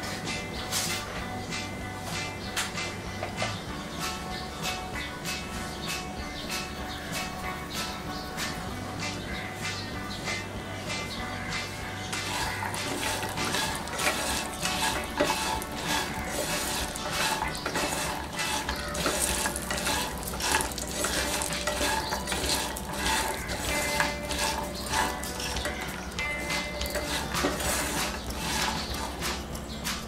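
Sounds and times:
spatula scraping frying pan: 0:11.9 - 0:30.0
nuts clattering against pan: 0:12.1 - 0:29.8.

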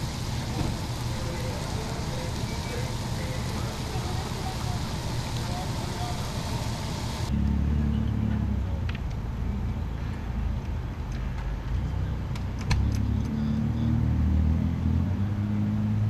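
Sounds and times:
vehicle engine idling: 0:00.0 - 0:10.7.

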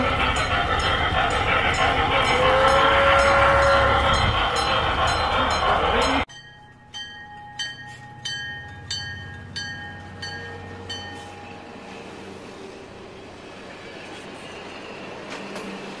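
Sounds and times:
locomotive bell ringing: 0:00.0 - 0:12.1.

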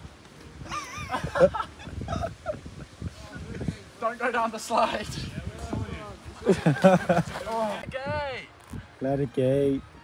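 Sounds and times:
men's voices: 0:03.0 - 0:09.9.

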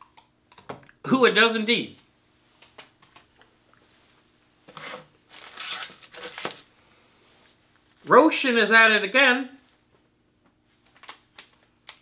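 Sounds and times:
snack packaging crinkling: 0:05.3 - 0:06.7, 0:10.8 - 0:12.0.

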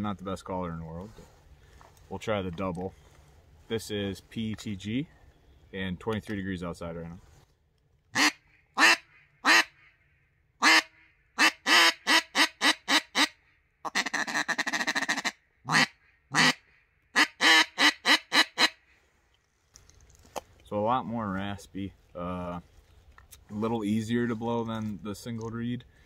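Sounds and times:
duck call quacks: 0:08.2 - 0:09.9, 0:10.6 - 0:16.6, 0:17.2 - 0:18.8.

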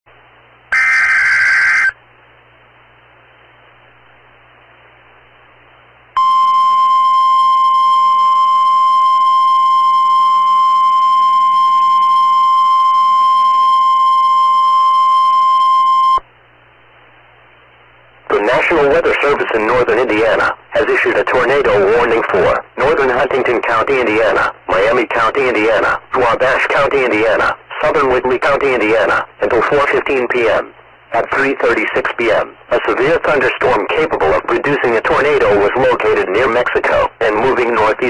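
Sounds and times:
faint radio hiss: 0:00.1 - 0:38.0
harsh digital data burst: 0:00.7 - 0:02.0
steady alert tone: 0:00.7 - 0:02.0.

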